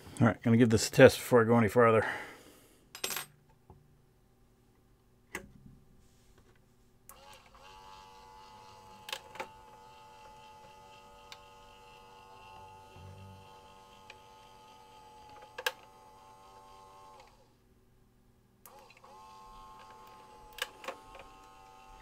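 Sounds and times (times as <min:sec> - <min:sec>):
small electric motor whining: 0:07.1 - 0:17.5, 0:18.7 - 0:22.0.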